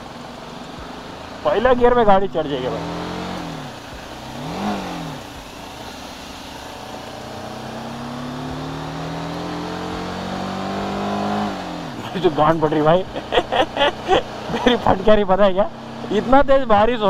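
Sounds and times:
motorcycle engine accelerating: 0.0s - 17.0s
wind and road noise: 0.0s - 17.0s.

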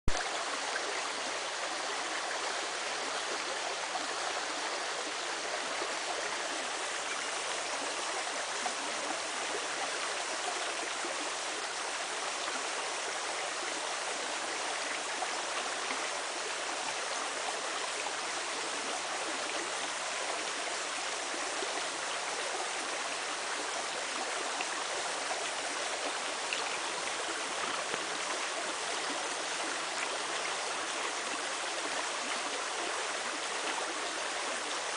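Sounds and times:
creek water flowing: 0.1s - 34.9s.

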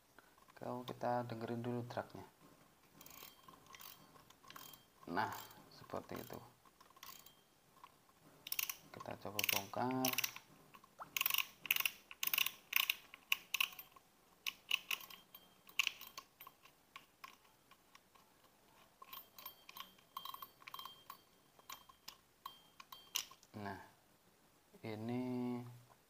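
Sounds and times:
fishing reel knob clicking: 8.5s - 8.8s, 9.4s - 10.4s, 11.2s - 13.8s.

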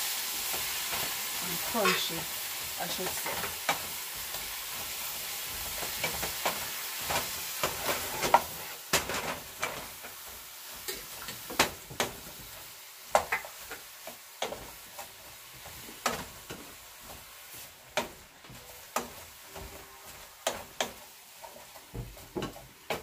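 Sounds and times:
vegetables sizzling: 0.0s - 23.0s
wooden spoon scraping metal pan: 1.5s - 2.3s.

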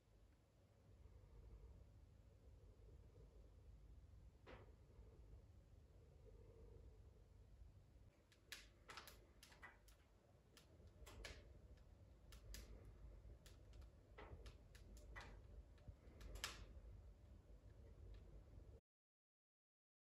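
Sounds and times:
wood fire crackling and popping: 8.1s - 18.8s.

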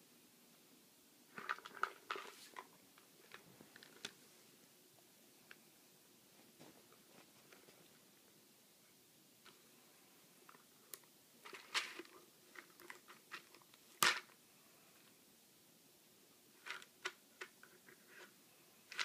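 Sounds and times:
treats rattling in canister: 1.3s - 4.1s, 11.4s - 14.4s.

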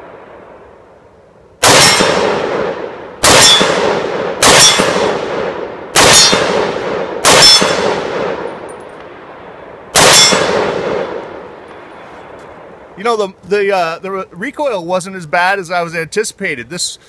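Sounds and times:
pistol shots with ringing decay: 1.6s - 8.8s, 9.9s - 11.6s.

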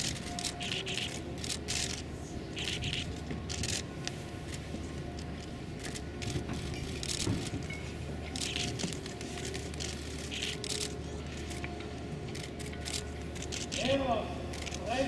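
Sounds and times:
crowd shuffling and rustling: 0.0s - 15.0s
low background hum: 0.0s - 15.0s.

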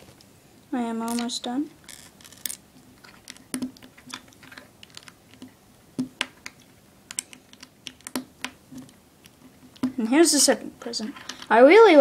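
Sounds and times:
plastic bricks clicking: 1.9s - 9.9s.

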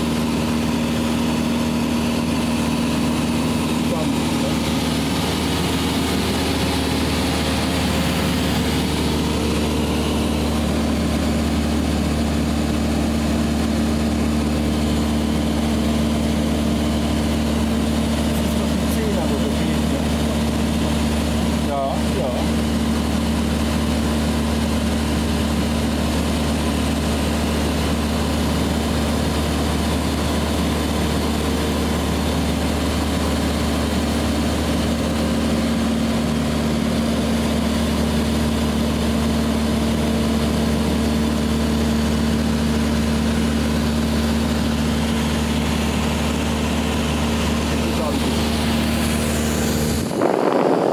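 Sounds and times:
propeller plane engine droning: 0.0s - 50.9s
rush of air: 48.4s - 50.9s.

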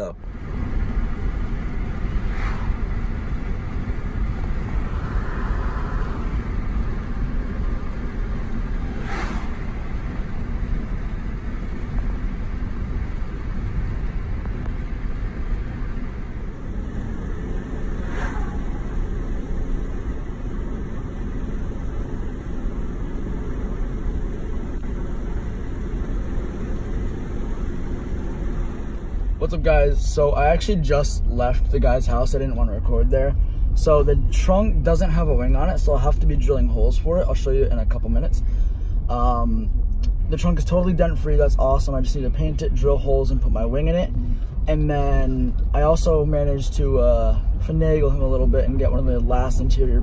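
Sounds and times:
car cabin road rumble: 0.0s - 50.0s
passing car whoosh: 0.8s - 11.8s, 16.8s - 20.9s.

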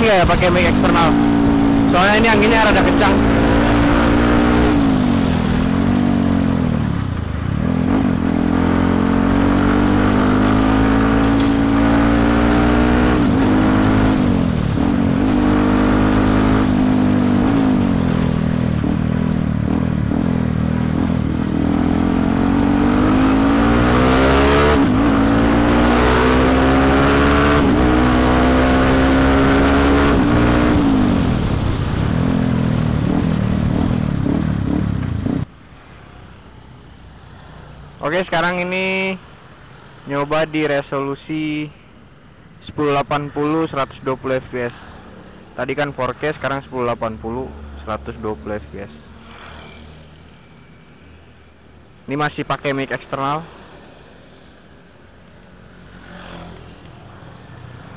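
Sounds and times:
motorcycle engine accelerating: 0.0s - 35.5s.

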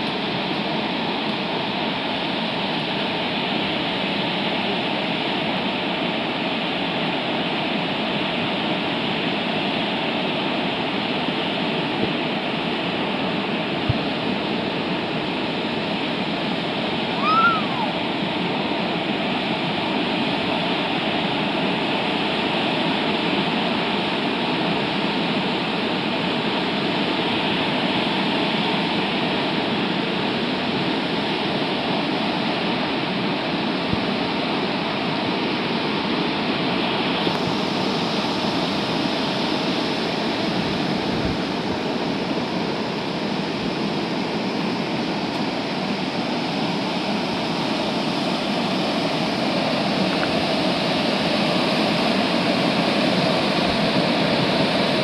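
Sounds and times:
waterfall roaring: 0.0s - 55.0s
chirp-like call: 17.2s - 18.0s.

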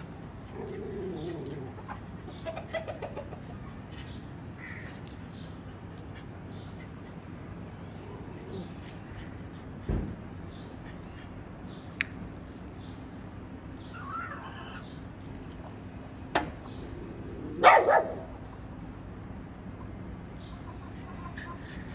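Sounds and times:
small dog barking: 17.6s - 18.3s.

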